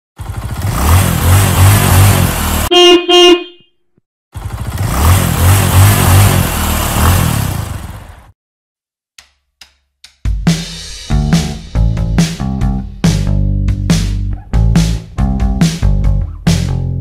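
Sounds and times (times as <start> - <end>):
car horn honks: 2.7 - 3.8.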